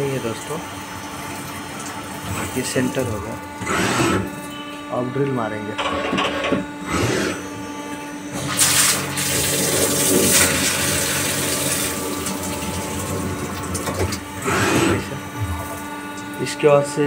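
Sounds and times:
coolant gushing and splashing: 0.0 - 4.6, 8.3 - 16.4
drill cutting metal: 0.0 - 17.0
machine humming: 0.0 - 17.0.

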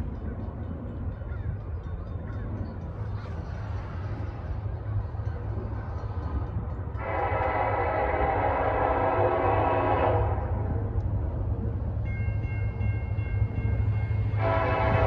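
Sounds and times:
locomotive air horn chord: 6.9 - 10.7, 14.3 - 15.0.

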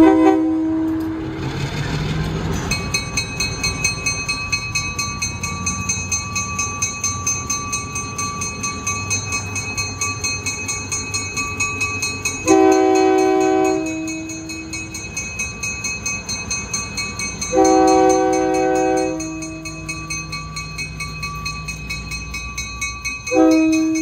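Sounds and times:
locomotive air horn chord: 0.0 - 1.2, 12.4 - 14.3, 17.5 - 19.6, 23.3 - 24.0
locomotive engine running: 0.0 - 24.0
locomotive bell ringing: 2.5 - 24.0.

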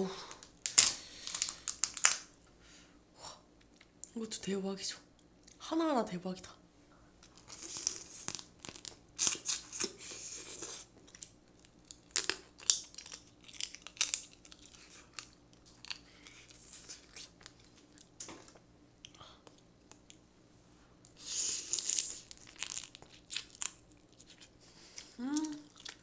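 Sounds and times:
crab shell crackling: 0.4 - 2.4, 11.1 - 18.3, 21.2 - 26.0
person biting and chewing: 7.4 - 18.1, 21.2 - 26.0.

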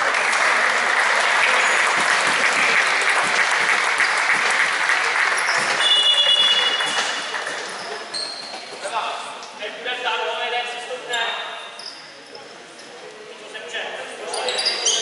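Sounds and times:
crowd applauding and cheering: 0.0 - 8.1
high whistle: 5.4 - 7.1.

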